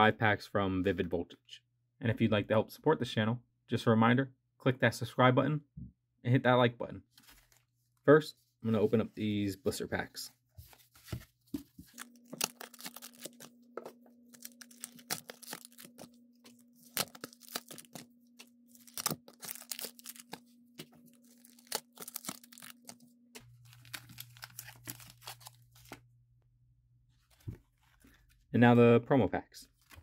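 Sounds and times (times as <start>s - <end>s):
plastic packaging tearing and crinkling: 11.9s - 13.6s, 14.2s - 26.0s.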